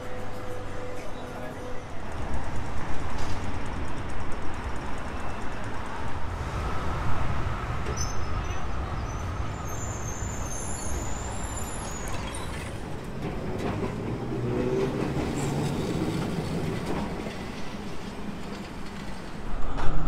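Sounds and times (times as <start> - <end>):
tram wheels rumbling on rails: 0.0 - 20.0
faint high squeal: 7.9 - 12.8.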